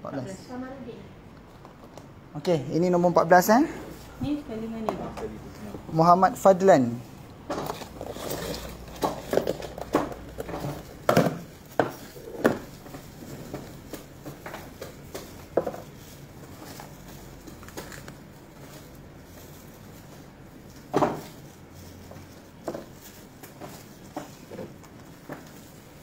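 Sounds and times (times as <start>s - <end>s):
plastic containers clicking and tapping: 8.9s - 15.9s.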